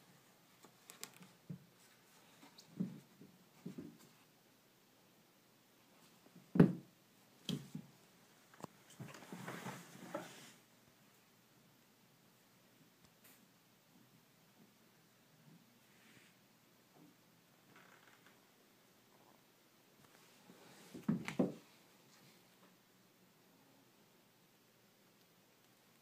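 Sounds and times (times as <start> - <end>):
rustling scrape: 9.0 - 10.6.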